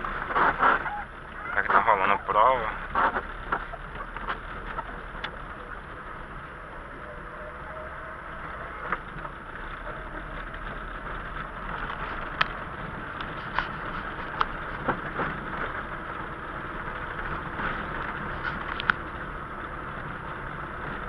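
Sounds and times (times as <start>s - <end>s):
tyre and road noise: 0.0s - 21.0s.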